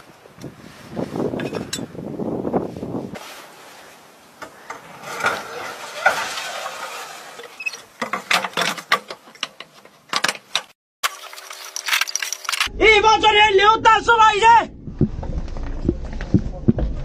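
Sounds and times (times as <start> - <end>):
metal scraping and squeaking: 4.7 - 8.9.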